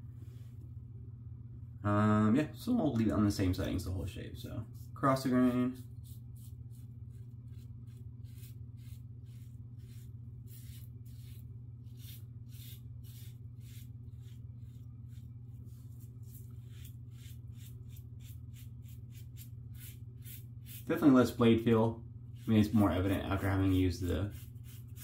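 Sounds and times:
razor scraping stubble: 4.8s - 21.7s, 22.4s - 25.0s.

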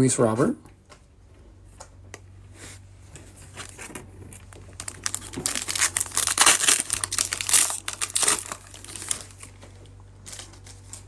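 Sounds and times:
foil wrapper crinkling: 3.2s - 11.0s.

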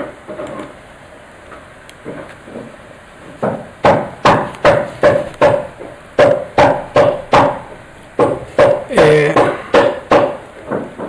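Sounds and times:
sharp ringing knocks: 3.4s - 11.0s.

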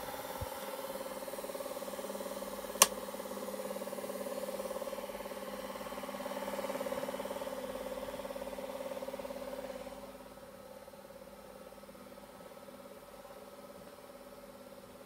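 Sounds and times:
film projector whirring: 0.0s - 10.6s.

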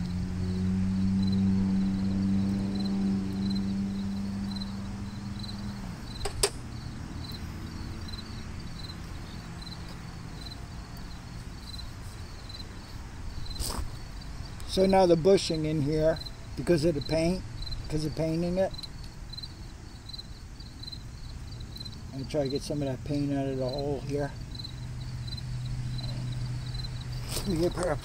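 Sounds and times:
insects chirping: 0.0s - 28.0s
low mechanical hum: 0.0s - 28.0s
sharp click: 6.2s - 6.6s.

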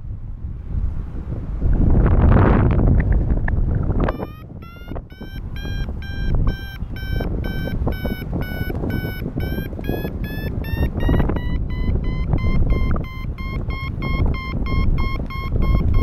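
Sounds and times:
wind rumble on microphone: 0.0s - 16.0s
variometer beeping: 4.0s - 16.0s.

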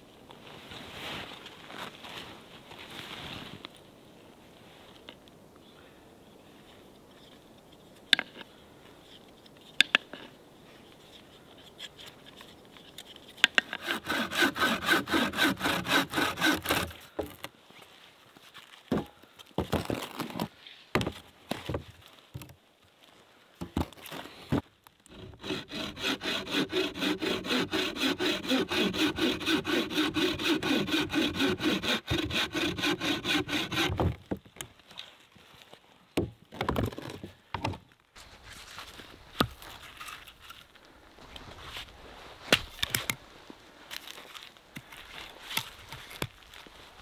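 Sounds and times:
hand saw cutting log: 13.6s - 17.4s, 25.1s - 34.2s.

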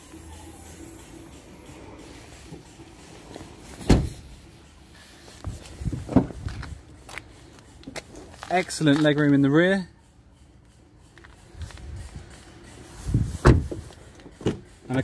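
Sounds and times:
car door unlatching and opening: 3.3s - 4.3s, 5.9s - 6.6s, 13.4s - 14.7s
car tailgate thump: 3.8s - 4.2s, 13.4s - 13.8s.

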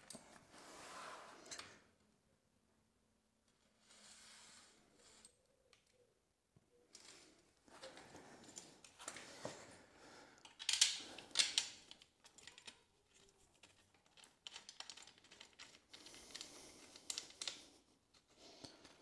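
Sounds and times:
metal parts clicking and rattling: 10.4s - 19.0s.

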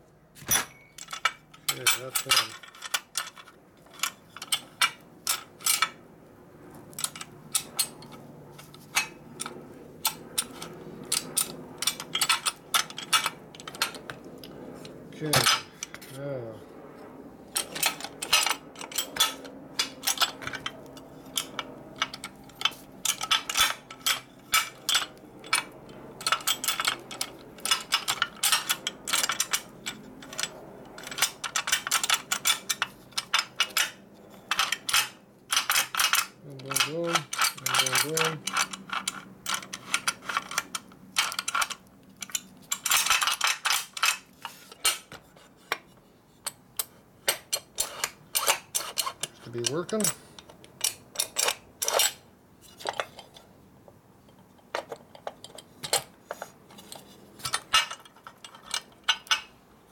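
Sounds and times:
metal parts clicking and clinking: 0.4s - 6.0s, 6.7s - 16.6s, 17.5s - 53.5s, 54.2s - 59.9s.

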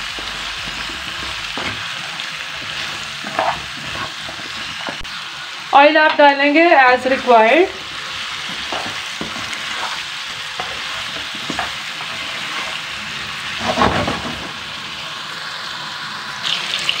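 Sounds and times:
vegetables sizzling in oil: 0.0s - 17.0s
spatula scraping a pan: 0.1s - 5.0s, 7.9s - 14.4s.

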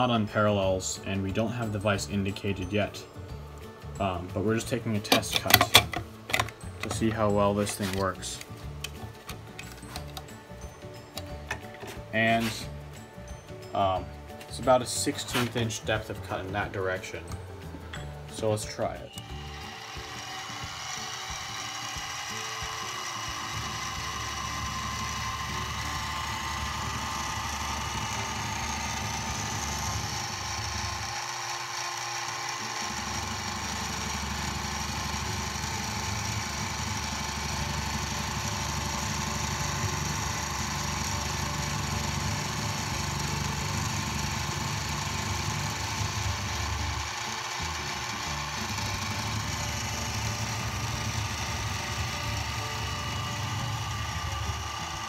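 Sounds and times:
milling machine cutting aluminium: 14.7s - 55.0s.

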